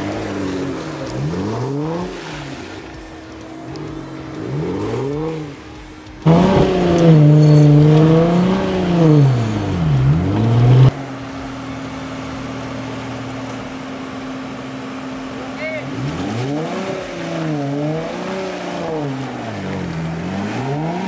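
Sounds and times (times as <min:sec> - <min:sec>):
car engine revving: 0:00.0 - 0:21.0.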